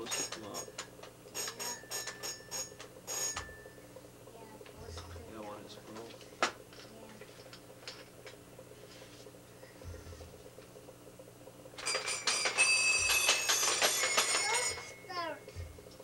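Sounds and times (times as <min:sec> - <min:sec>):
toy bell ringing: 0:01.4 - 0:03.8, 0:11.8 - 0:15.6.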